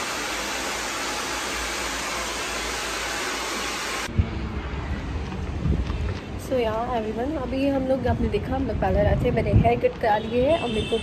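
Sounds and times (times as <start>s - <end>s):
hair dryer blowing: 0.0s - 4.1s.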